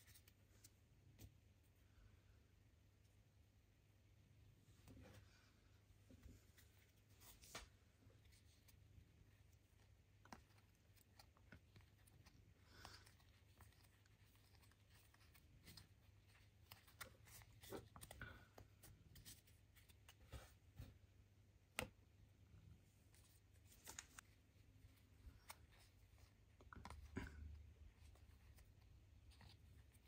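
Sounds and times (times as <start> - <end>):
cards sliding and flicking: 23.6 - 24.3.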